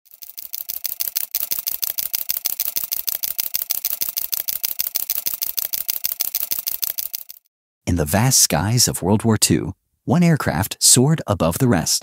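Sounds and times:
rapid mechanical clicking: 0.0 - 7.5.

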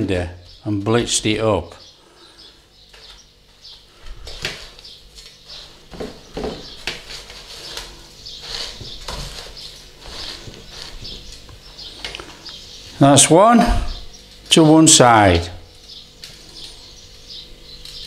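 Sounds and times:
crunching and rustling of breadcrumbs: 2.3 - 13.0.

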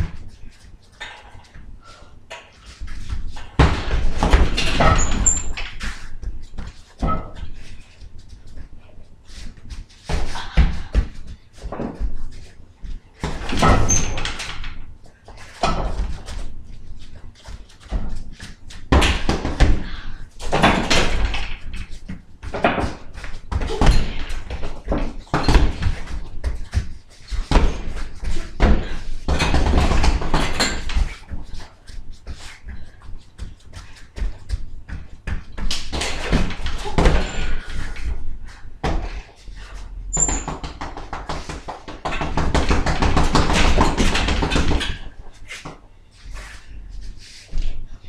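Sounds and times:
kicks and punches on bag: 3.3 - 7.4, 18.8 - 31.4, 40.4 - 45.1.

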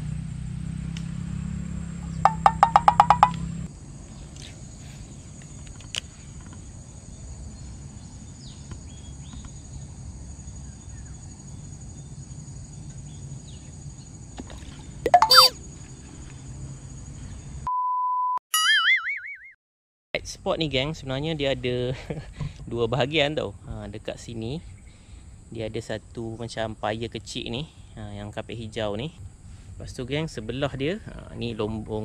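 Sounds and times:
steady beep: 2.3 - 3.4, 15.1 - 15.5
wobbly boing sound effect: 2.3 - 3.4, 15.1 - 15.5.

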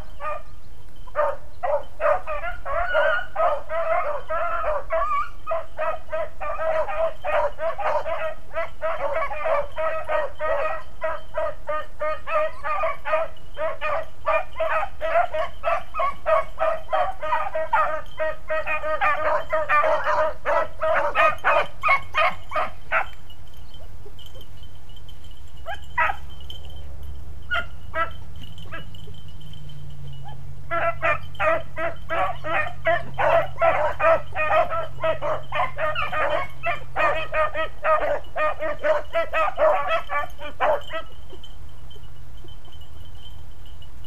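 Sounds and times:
hounds baying: 0.0 - 43.3.

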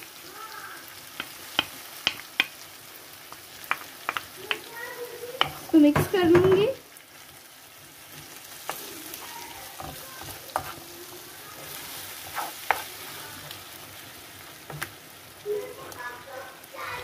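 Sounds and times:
sauce sizzling in a frying pan: 0.0 - 17.0
wooden spoon tapping and scraping pan: 1.1 - 2.6, 3.3 - 6.8, 8.1 - 11.0, 11.6 - 13.6, 14.6 - 15.0.

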